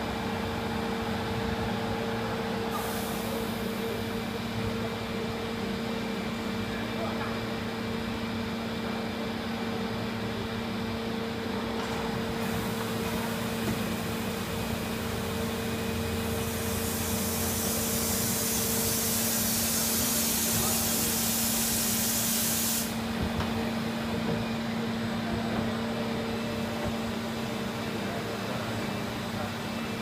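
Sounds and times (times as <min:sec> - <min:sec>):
hiss: 0:02.7 - 0:03.8, 0:16.4 - 0:23.0.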